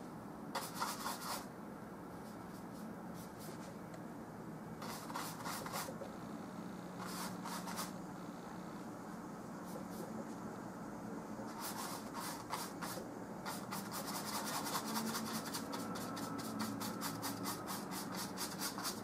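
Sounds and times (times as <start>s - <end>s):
paintbrush scrubbing paint: 0.6s - 1.5s, 4.8s - 5.9s, 11.5s - 19.0s.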